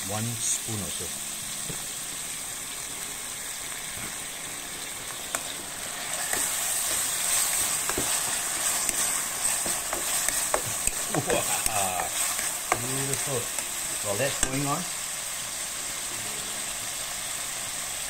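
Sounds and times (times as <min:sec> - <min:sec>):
food sizzling in hot oil: 0:00.0 - 0:18.0
spatula stirring and scraping: 0:05.3 - 0:14.7.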